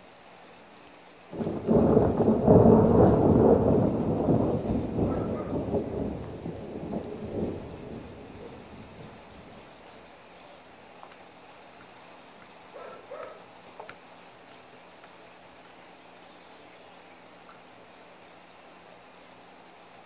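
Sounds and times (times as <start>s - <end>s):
thunder rumbling: 1.3s - 9.7s.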